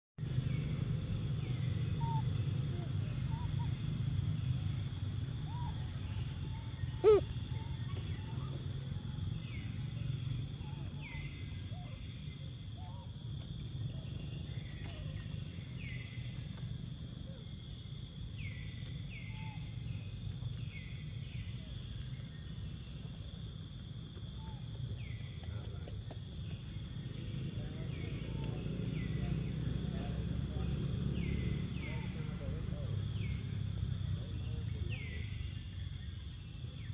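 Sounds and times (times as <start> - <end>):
insect drone: 0.2 - 36.9
faint chirps: 0.3 - 23.6
short repeating calls: 7.0 - 7.3.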